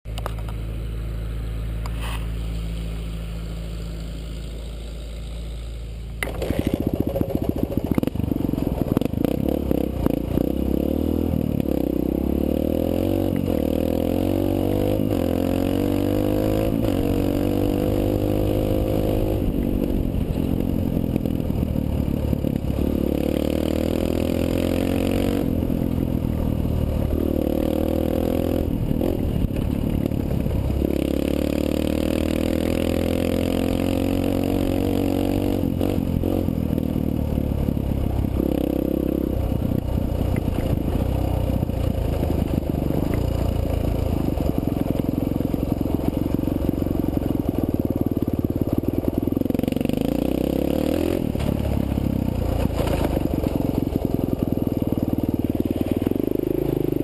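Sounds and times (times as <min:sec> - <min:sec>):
dirt bike engine revving: 0:21.6 - 0:25.9.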